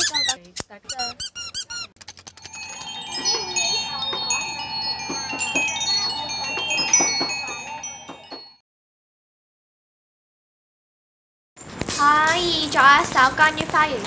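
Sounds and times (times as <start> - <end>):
squeaky toys squeaking: 0.0 - 8.4
small chimes tinkling: 2.3 - 8.6.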